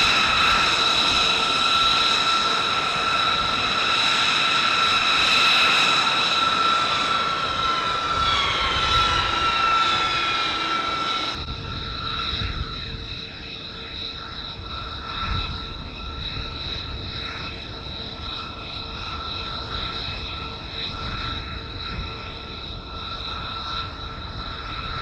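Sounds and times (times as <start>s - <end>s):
whine gliding down in pitch: 0.0s - 17.6s
jet engine turbine whine: 0.0s - 25.0s.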